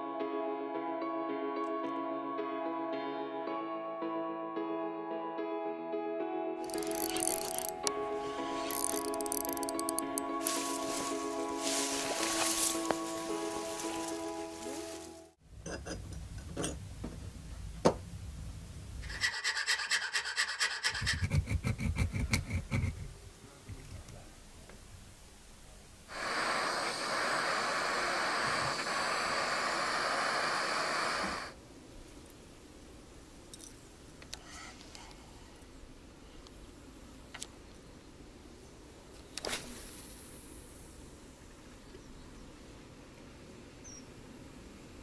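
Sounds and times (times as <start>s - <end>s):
loud steady hiss: 6.6s - 15.4s, 23.2s - 33.5s, 38.0s - 43.0s
filing and rubbing metal: 19.0s - 23.1s.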